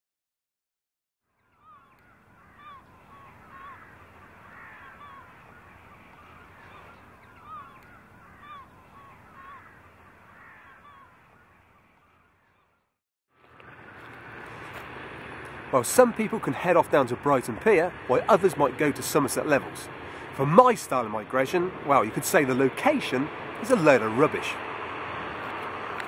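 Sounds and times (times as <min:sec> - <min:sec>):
flock of birds calling: 0:01.5 - 0:12.8.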